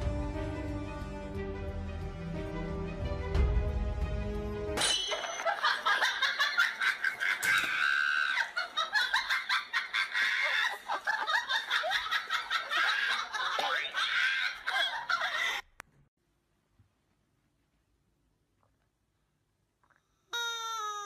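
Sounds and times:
music: 0:00.0 - 0:04.8
high-pitched laughter: 0:05.3 - 0:15.6.

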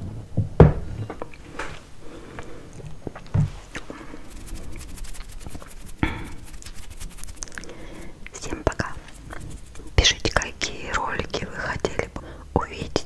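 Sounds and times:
fingers scratching windscreen: 0:04.1 - 0:10.5.

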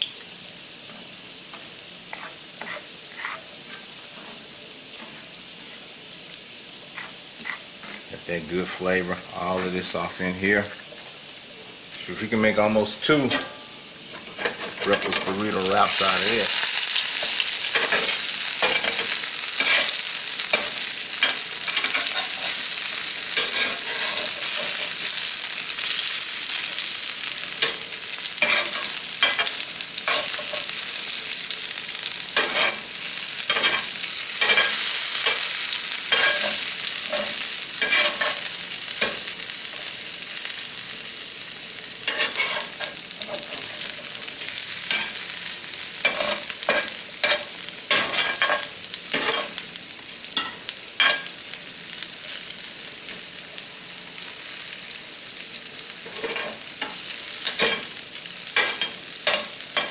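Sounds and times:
food sizzling in oil: 0:00.0 - 0:59.9
metal spatula scraping a pan: 0:02.1 - 0:04.4, 0:06.9 - 0:08.1, 0:13.2 - 0:25.2, 0:27.6 - 0:30.8, 0:32.1 - 0:39.2, 0:42.1 - 0:44.2, 0:46.0 - 0:49.6, 0:56.0 - 0:57.9.

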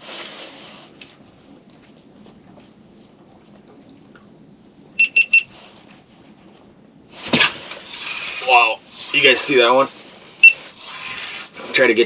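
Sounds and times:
electronic beeps: 0:05.0 - 0:05.5, 0:10.4 - 0:10.6.

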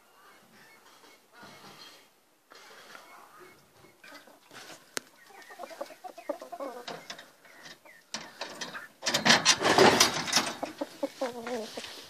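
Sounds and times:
rooster clucking softly: 0:05.2 - 0:07.9, 0:10.6 - 0:12.0.

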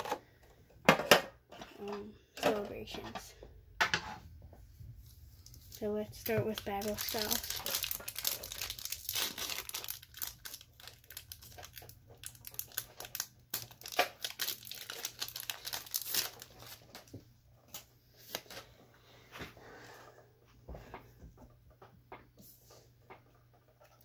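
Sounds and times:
foil wrapper crinkling: 0:05.4 - 0:18.7.

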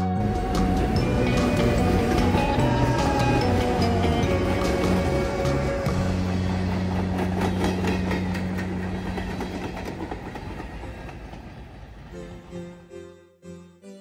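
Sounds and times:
train wheels clacking over rail joints: 0:00.5 - 0:11.6.

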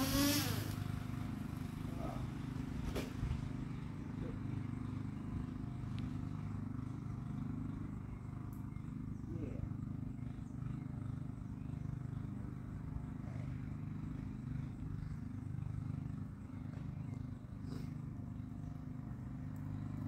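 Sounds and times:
small engine idling: 0:00.0 - 0:20.0.

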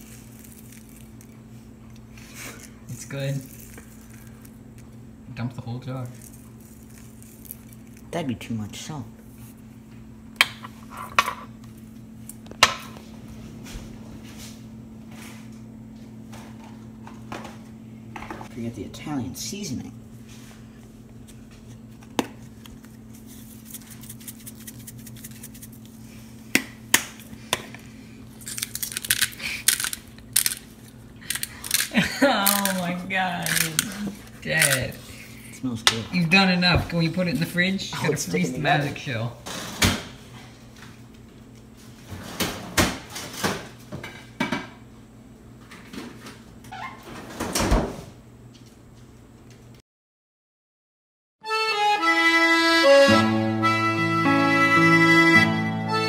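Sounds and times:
low steady hum: 0:00.0 - 0:42.1.

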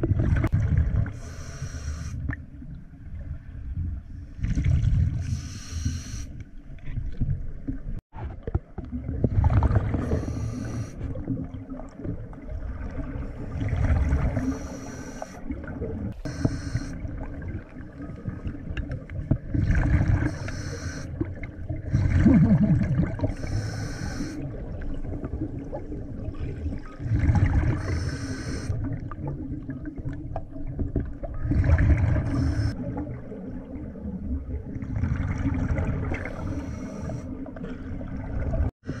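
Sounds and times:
exhaled bubbles rushing: 0:00.0 - 0:01.2, 0:04.4 - 0:05.3, 0:08.4 - 0:14.7, 0:17.0 - 0:20.4, 0:21.1 - 0:23.5, 0:24.4 - 0:38.7
regulator hiss on inhale: 0:01.2 - 0:02.2, 0:05.2 - 0:06.3, 0:10.0 - 0:11.0, 0:14.4 - 0:15.4, 0:16.2 - 0:17.0, 0:20.3 - 0:21.1, 0:23.4 - 0:24.4, 0:27.8 - 0:28.7, 0:36.3 - 0:37.3.

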